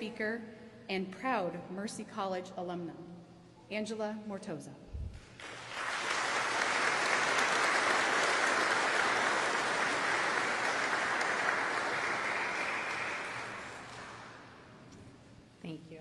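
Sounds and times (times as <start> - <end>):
audience applauding: 5.4 - 14.6.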